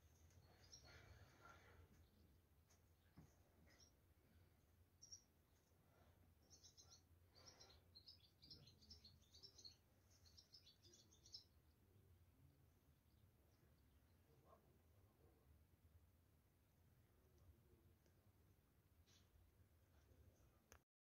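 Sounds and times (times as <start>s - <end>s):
small bird chirping: 0.2s - 1.3s, 3.0s - 4.0s, 4.9s - 5.7s, 6.4s - 11.8s.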